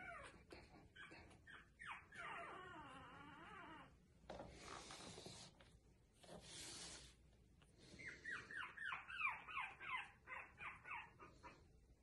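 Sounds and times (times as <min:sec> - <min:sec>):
puppy whimpering: 0:00.0 - 0:04.0, 0:07.9 - 0:11.7
rustling and rubbing: 0:04.3 - 0:07.5.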